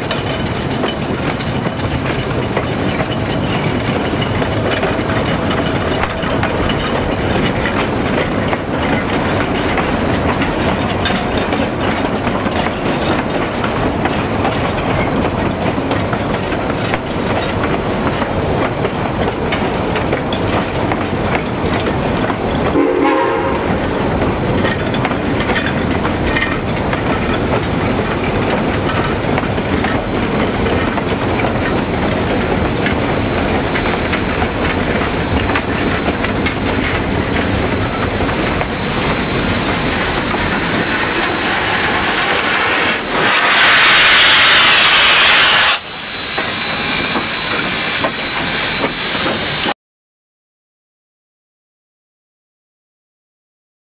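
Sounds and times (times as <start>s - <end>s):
steam whistle blast: 22.7s - 23.9s, 38.5s - 49.2s
steam hissing: 27.4s - 49.7s.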